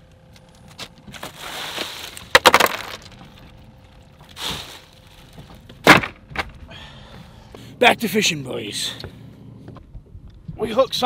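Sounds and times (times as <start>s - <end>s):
ice cubes clattering into cooler: 1.1s - 3.4s.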